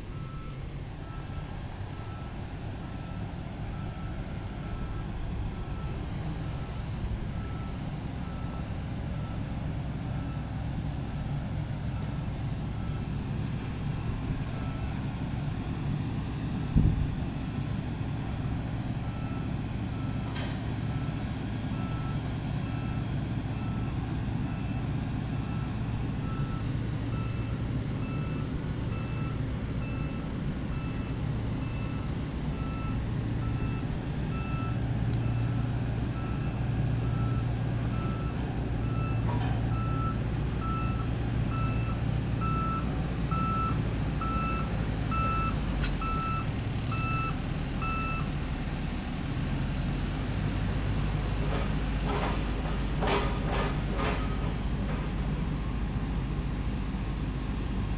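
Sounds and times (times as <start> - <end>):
diesel engine running: 0.0 - 57.9
backup alarm beeping: 36.2 - 48.3.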